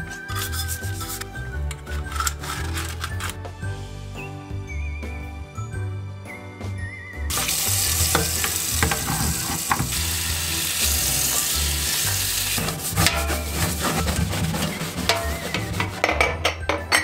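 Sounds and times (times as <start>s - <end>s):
background music: 0.0s - 17.0s
tap water running into a sink: 7.3s - 13.0s.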